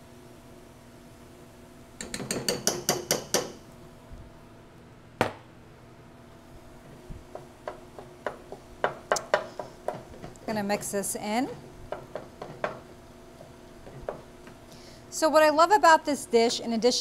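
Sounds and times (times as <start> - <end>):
rice stirred in skillet tapping: 7.2 - 14.6.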